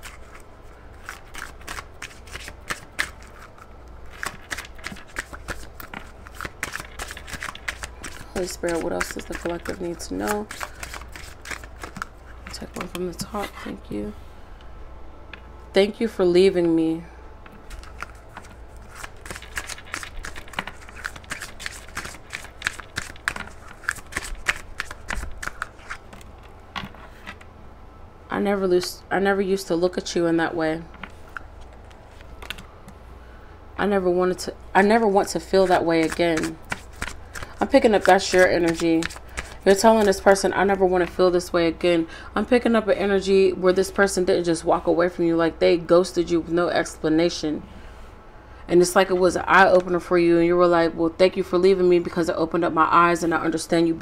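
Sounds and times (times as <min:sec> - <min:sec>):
cards being shuffled: 0:00.0 - 0:13.5, 0:17.6 - 0:27.4, 0:34.8 - 0:40.4.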